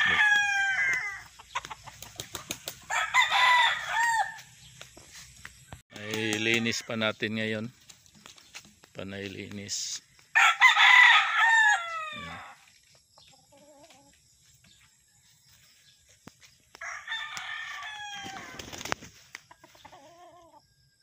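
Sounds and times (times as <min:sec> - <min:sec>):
rooster crowing: 0:00.0 - 0:01.3, 0:02.8 - 0:04.5, 0:10.3 - 0:12.6, 0:16.8 - 0:18.6
distant roosters crowing: 0:00.0 - 0:04.6, 0:05.7 - 0:07.7, 0:10.0 - 0:12.7, 0:16.7 - 0:18.9.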